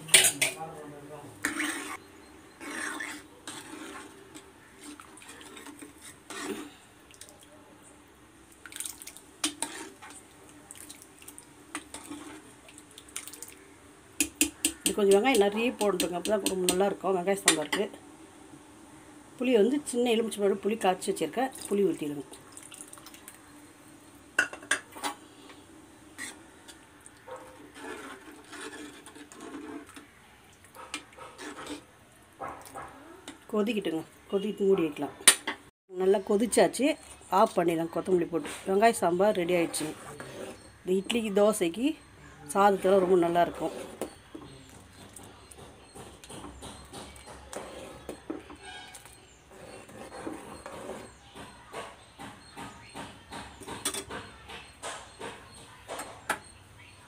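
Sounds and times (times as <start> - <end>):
stirring thin soup: 1.4 - 7.5, 8.5 - 13.6, 26.1 - 31.9, 39.5 - 40.7, 42.8 - 46.4, 47.2 - 51.2
liquid sloshing and dripping: 8.6 - 9.3, 10.5 - 13.6, 22.4 - 23.4.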